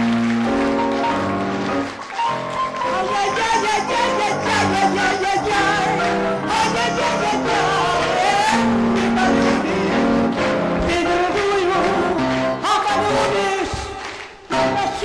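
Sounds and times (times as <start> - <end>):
instrumental accompaniment: 0.0 - 15.0.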